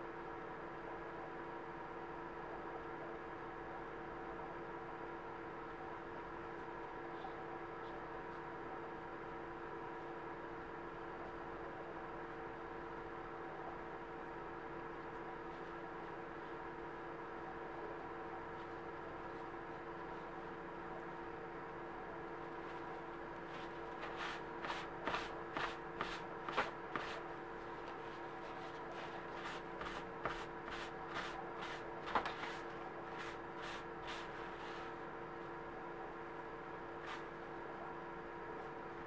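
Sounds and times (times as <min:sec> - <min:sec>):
faint hum: 0:00.0 - 0:39.0
paper towel rustling strokes: 0:22.6 - 0:35.0.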